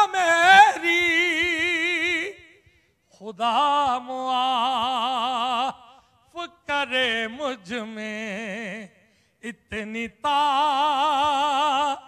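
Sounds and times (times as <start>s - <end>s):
man chanting with vibrato: 0.0s - 2.6s, 3.2s - 12.0s.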